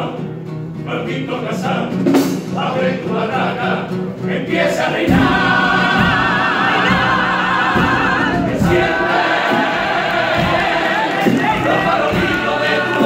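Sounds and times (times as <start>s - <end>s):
male chorus singing in harmony: 0.9s - 13.0s.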